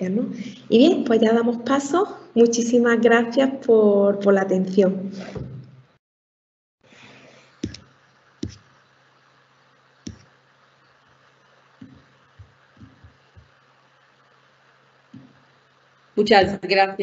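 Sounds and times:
faint low hum: 6.9s - 17.0s
sharp clicks: 7.6s - 8.7s, 10.1s - 10.3s.

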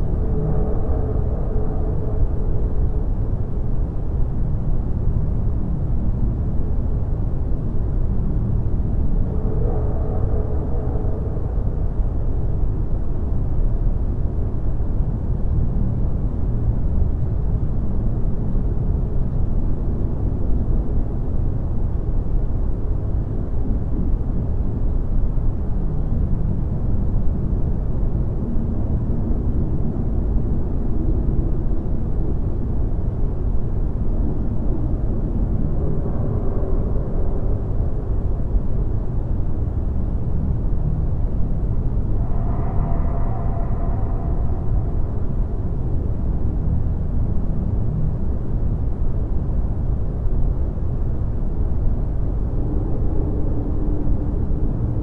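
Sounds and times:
deep rumbling noise: 0.0s - 18.2s, 19.0s - 55.0s.

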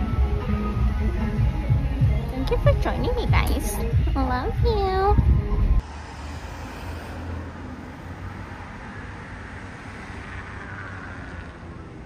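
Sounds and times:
low traffic rumble: 0.0s - 12.0s.

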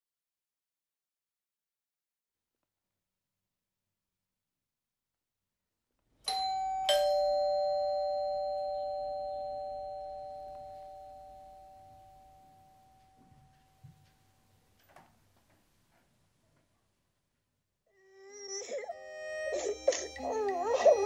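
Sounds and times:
two-tone doorbell chime: 6.3s - 14.4s.

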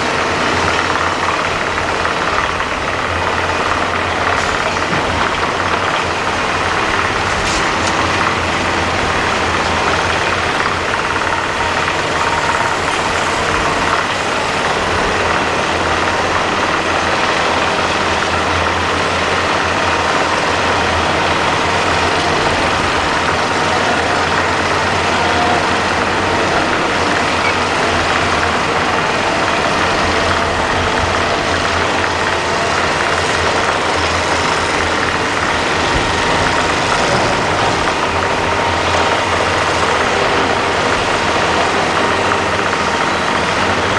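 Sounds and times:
heavy diesel machinery running: 0.0s - 43.9s.

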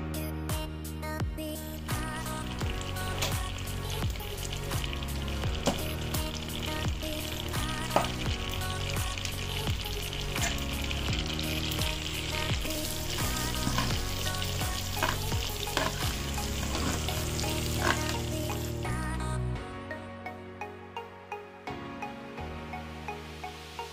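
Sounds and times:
butter sizzling in a pan: 1.8s - 18.8s.

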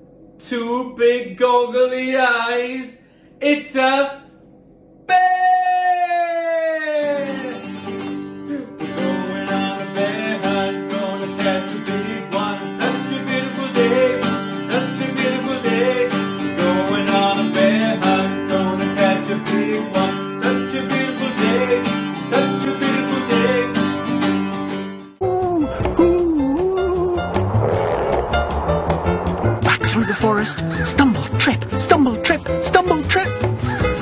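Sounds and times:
acoustic guitar strumming chords: 7.2s - 28.6s.

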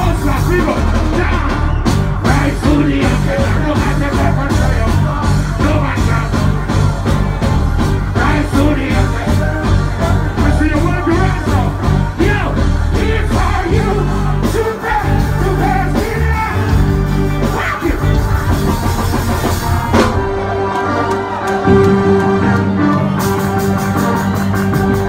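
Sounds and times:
live reggae band playing: 0.0s - 25.0s
person singing: 0.1s - 6.6s.

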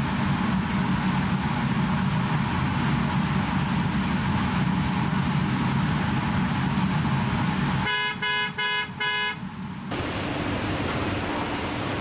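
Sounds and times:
rumbling factory noise: 0.0s - 7.9s, 8.9s - 12.0s
car horn toots: 7.8s - 9.4s.

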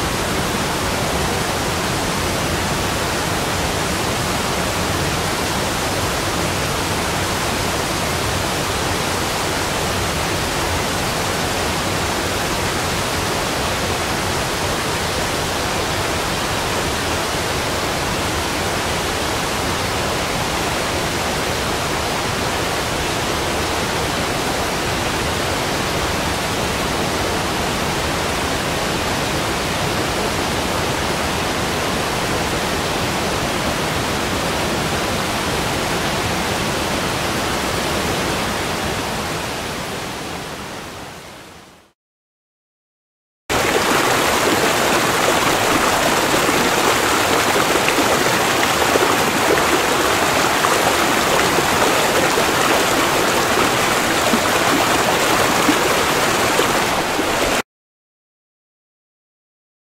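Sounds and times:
rushing water: 0.0s - 40.5s, 43.5s - 57.6s.

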